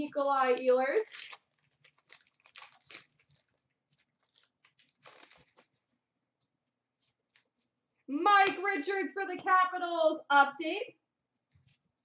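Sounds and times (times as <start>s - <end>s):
trading cards shuffling: 1.8s - 5.9s.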